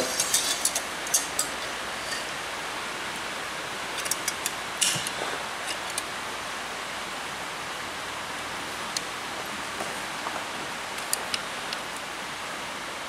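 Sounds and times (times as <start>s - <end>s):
rain on a tin roof: 0.0s - 13.0s.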